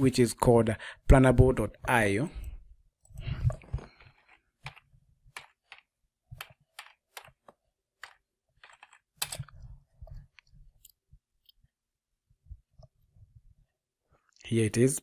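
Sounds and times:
keyboard typing: 4.0s - 11.0s.

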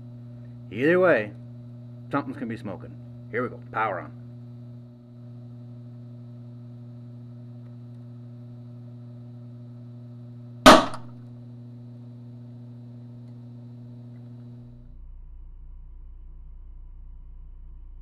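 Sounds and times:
steady hum: 0.0s - 18.0s
capacitor bursting bang: 10.7s - 11.2s.

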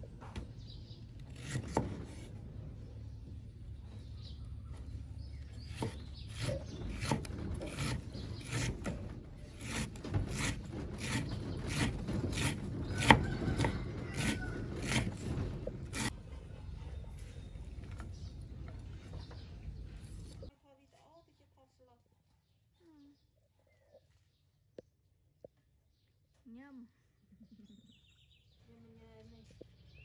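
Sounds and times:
knife chopping on wooden board: 1.4s - 2.3s, 5.7s - 9.0s, 9.6s - 15.2s.

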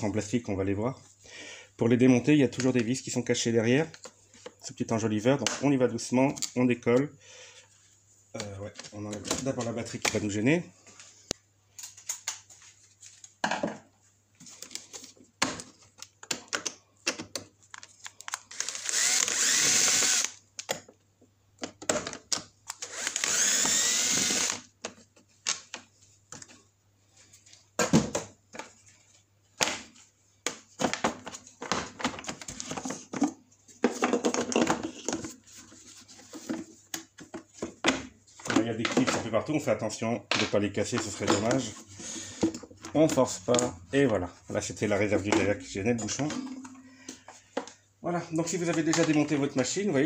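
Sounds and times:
plastic covers clicking and knocking: 8.4s - 10.4s, 13.4s - 13.9s, 14.6s - 18.3s, 21.6s - 22.6s, 27.8s - 28.8s, 29.6s - 35.4s, 36.3s - 39.6s, 40.3s - 41.7s, 48.5s - 49.6s
power screwdriver whirring: 18.5s - 20.4s, 22.8s - 24.6s.

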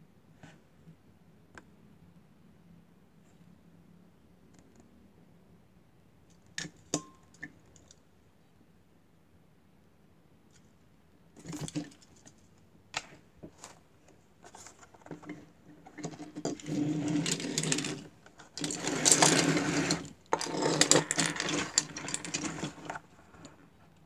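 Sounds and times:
toy cars clicking and rattling: 15.1s - 23.6s.

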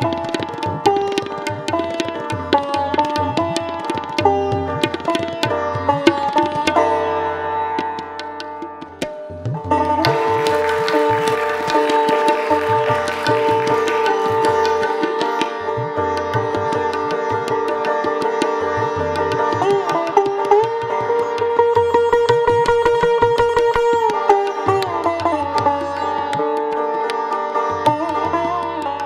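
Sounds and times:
plucked sitar: 0.0s - 29.0s
tabla drum strokes: 0.0s - 29.0s.

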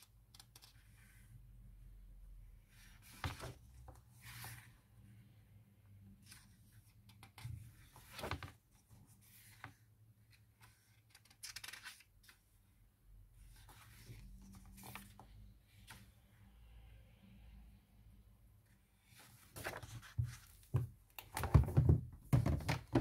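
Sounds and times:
book pages turning: 9.4s - 12.4s, 13.5s - 16.2s, 19.2s - 21.5s.

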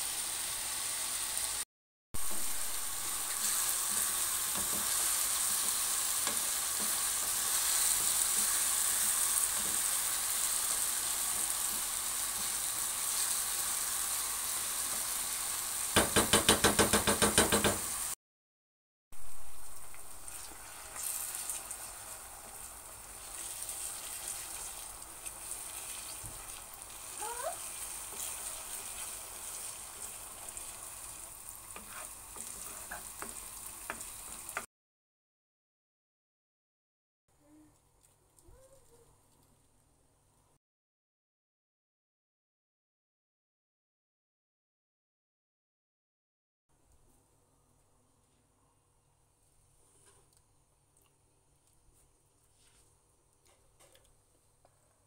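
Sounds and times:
vegetables sizzling in oil: 0.0s - 1.6s, 2.2s - 18.2s, 19.2s - 34.7s
eggs sizzling: 2.2s - 18.2s, 19.2s - 34.7s.

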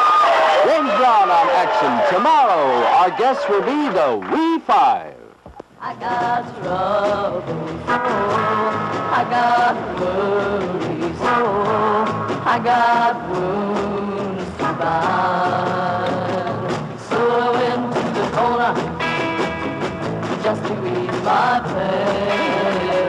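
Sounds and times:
folk-rock song with singing: 5.8s - 23.0s.

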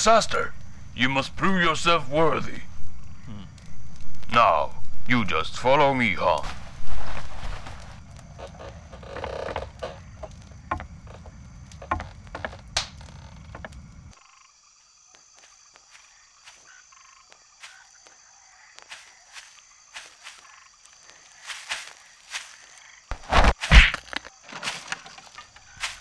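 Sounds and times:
footsteps on fallen leaves: 6.4s - 8.0s, 17.6s - 18.2s, 18.8s - 26.0s
cloth rustling: 6.4s - 9.5s, 21.1s - 26.0s.

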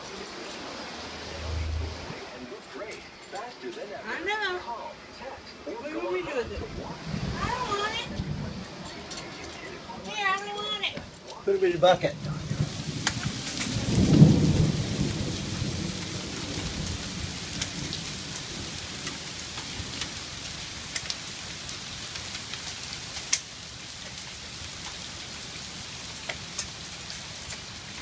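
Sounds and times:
heavy rain and hail falling: 0.0s - 28.0s
low rumble of thunder: 0.9s - 2.2s, 6.6s - 8.9s, 12.1s - 20.6s
sharp ticks of hail: 12.3s - 28.0s.

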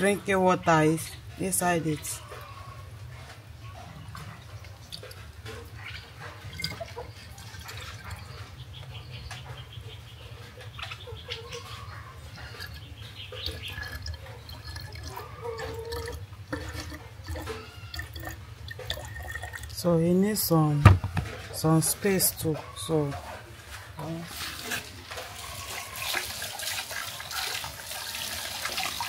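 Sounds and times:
water pouring into a bottle: 12.6s - 19.8s, 24.3s - 29.0s.

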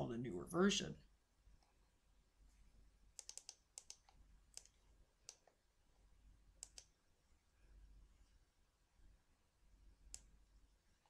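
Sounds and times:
low steady hum: 0.0s - 11.0s
mouse and keyboard clicks: 3.2s - 5.6s, 6.6s - 6.9s.

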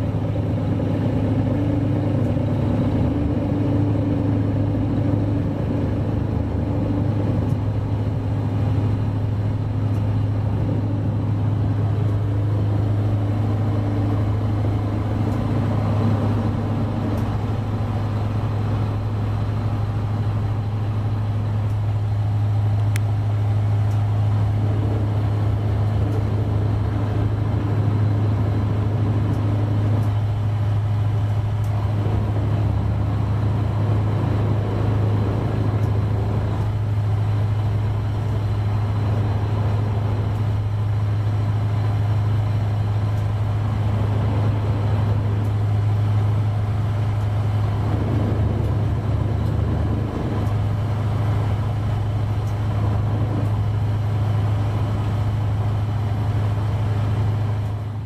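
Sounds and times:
boat engine droning: 0.0s - 58.0s.

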